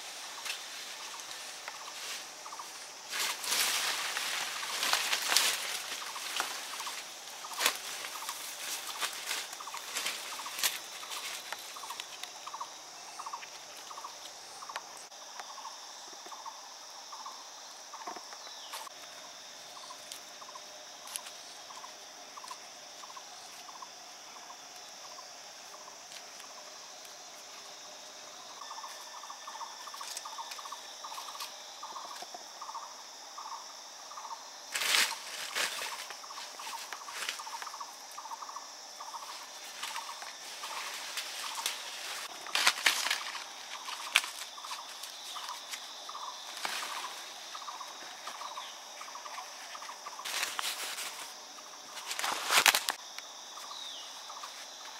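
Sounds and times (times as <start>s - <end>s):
crackling rustle: 0.0s - 12.6s, 34.7s - 54.9s
high insect drone: 0.0s - 54.9s.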